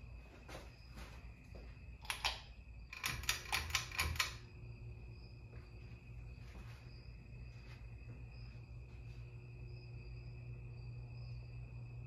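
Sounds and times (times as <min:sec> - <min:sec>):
pull chain switch clicking: 0:02.0 - 0:04.4.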